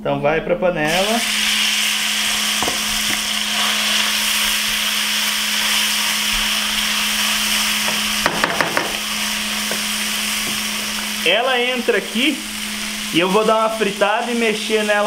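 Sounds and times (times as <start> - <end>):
meat sizzling in a pan: 0.9 - 15.0
spoon scraping and knocking pan: 7.8 - 11.0.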